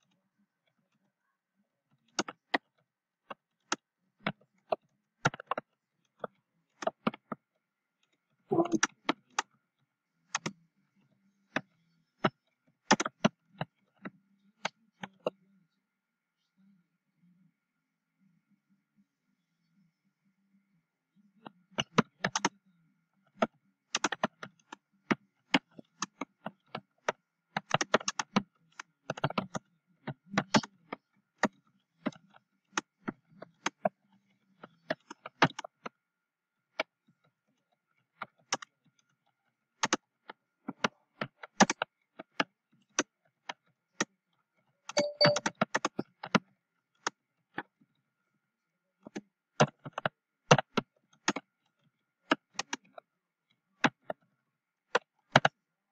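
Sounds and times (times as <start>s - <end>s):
typing on computer keyboard: 23.4s - 24.8s, 40.7s - 43.0s, 44.9s - 46.4s.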